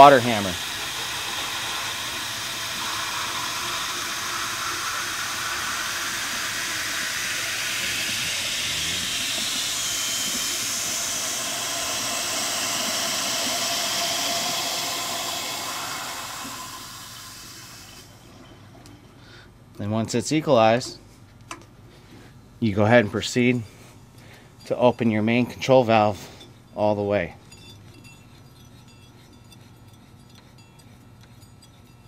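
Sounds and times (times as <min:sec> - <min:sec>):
water flowing through drain: 0:00.0 - 0:18.2.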